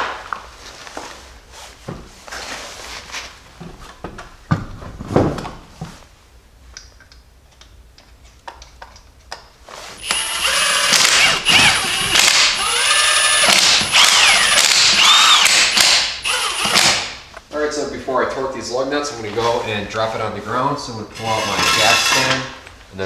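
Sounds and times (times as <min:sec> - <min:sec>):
impact wrench bursts: 0:10.0 - 0:17.2, 0:21.2 - 0:22.5.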